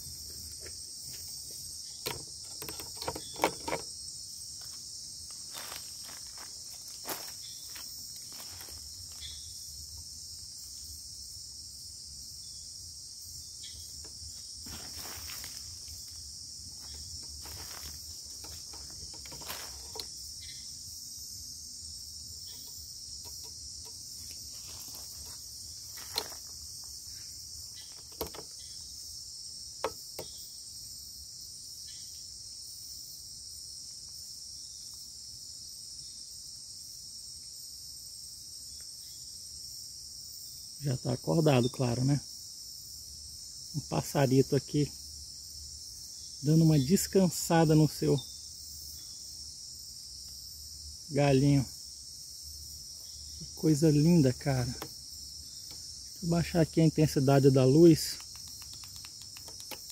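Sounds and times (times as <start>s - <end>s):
insect chorus: 0.0s - 59.9s
footsteps through undergrowth: 4.6s - 9.5s, 14.3s - 20.2s, 24.1s - 28.1s
leaves rustling: 5.2s - 9.5s, 14.4s - 20.2s.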